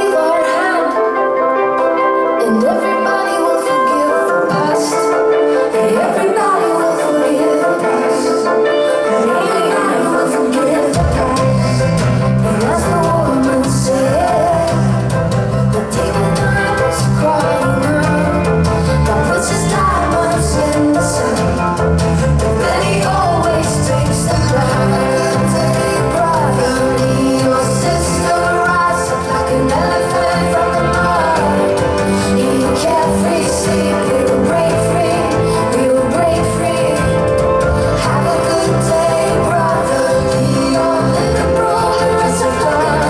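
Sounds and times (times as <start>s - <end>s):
electric guitar: 0.0s - 43.0s
woman singing lead: 0.0s - 43.0s
bass and drums beat: 11.0s - 43.0s.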